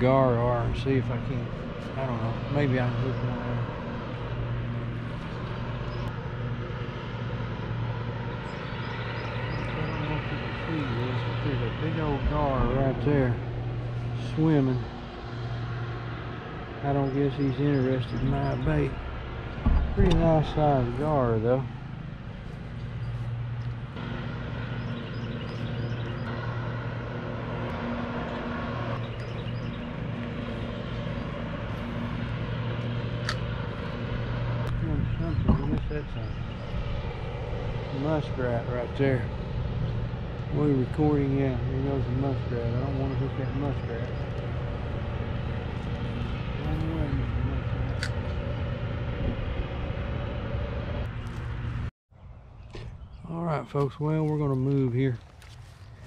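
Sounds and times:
distant engine drone: 0.0s - 56.0s.

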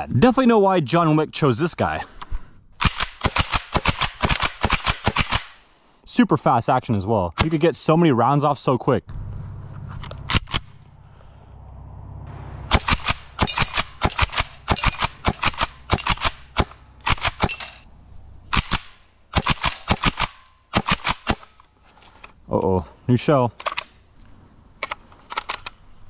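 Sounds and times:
airsoft shotgun shots: 2.8s - 5.6s, 12.7s - 17.8s, 18.5s - 21.5s.

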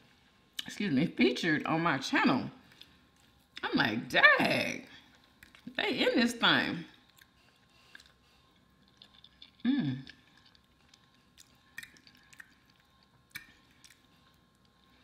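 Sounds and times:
soft chewing: 2.6s - 3.6s, 4.8s - 5.8s, 6.8s - 15.0s.

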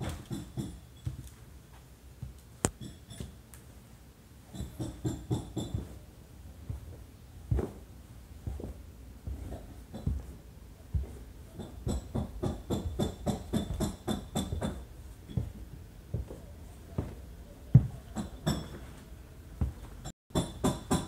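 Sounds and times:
footsteps going down stairs: 0.0s - 2.4s, 4.5s - 6.0s, 6.6s - 19.0s, 19.6s - 20.1s.

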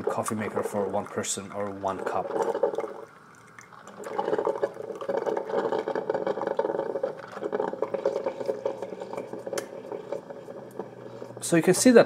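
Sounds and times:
coffee maker bubbling gurgle: 0.0s - 12.0s.

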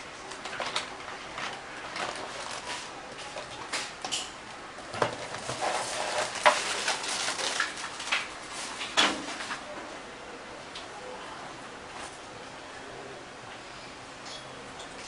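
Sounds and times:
plastic packaging crackling: 0.3s - 3.8s, 4.9s - 9.0s.

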